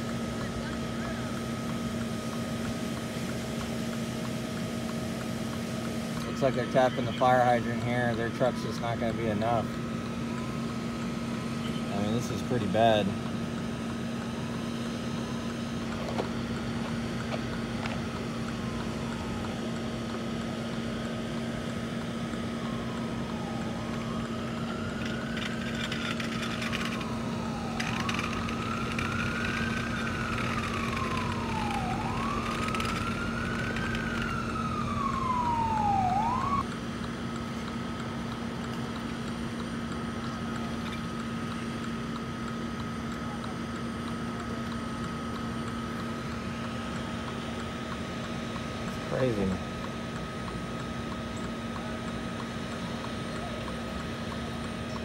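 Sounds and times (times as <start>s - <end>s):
siren wailing: 0.0s - 36.7s
engine drone: 0.0s - 55.0s.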